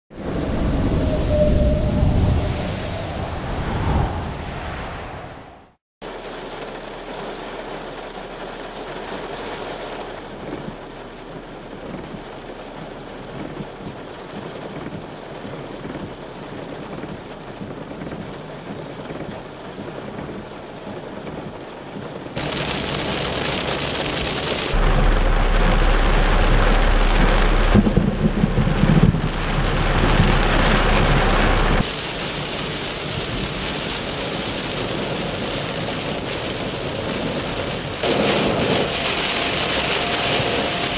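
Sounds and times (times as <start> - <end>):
heavy rain pouring: 0.1 - 4.5, 6.0 - 40.9
low rumble: 0.1 - 5.8, 22.4 - 31.9.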